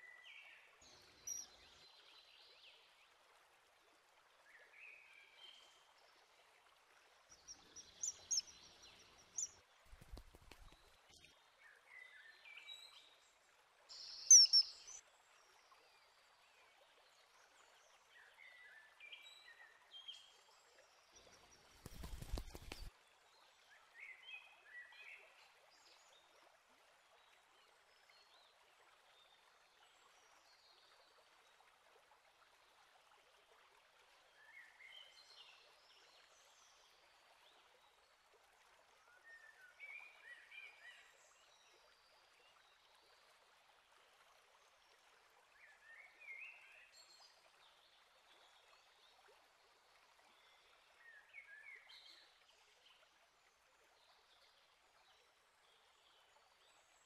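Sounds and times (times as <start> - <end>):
faint outdoor ambience hiss: 0.0 - 57.0
songbird singing: 1.0 - 1.6, 7.3 - 11.2, 13.9 - 15.0, 21.8 - 22.9.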